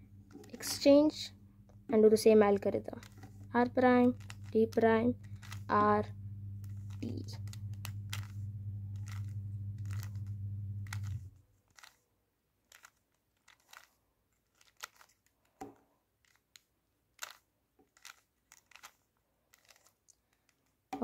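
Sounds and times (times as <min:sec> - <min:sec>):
steady low hum: 0:00.0 - 0:11.4
puzzle cube layers clicking: 0:02.9 - 0:05.9, 0:06.6 - 0:08.4, 0:09.0 - 0:12.0, 0:12.7 - 0:15.4, 0:16.2 - 0:21.0.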